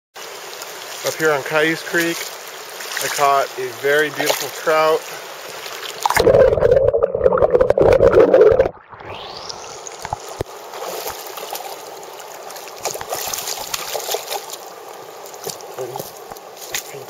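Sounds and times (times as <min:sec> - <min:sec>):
creek trickling over gravel: 0:00.2 - 0:06.2, 0:09.5 - 0:17.0
muffled underwater water noise: 0:00.2 - 0:17.0.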